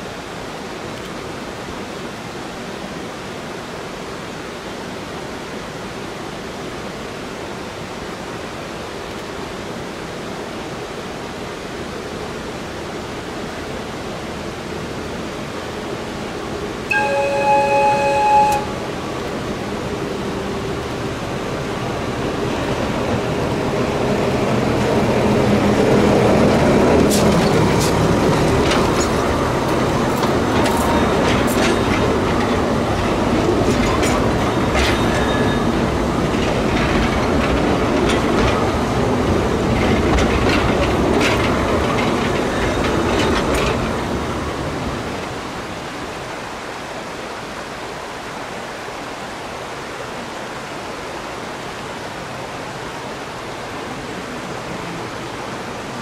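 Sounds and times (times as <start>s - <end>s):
train wheels clicking over track: 22.6s - 44.4s.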